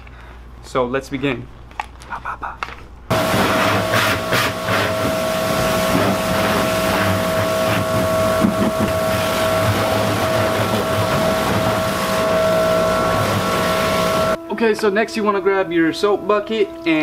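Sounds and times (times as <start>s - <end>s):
power washer whine: 3.1s - 14.4s
water jet blasting car: 3.1s - 14.4s.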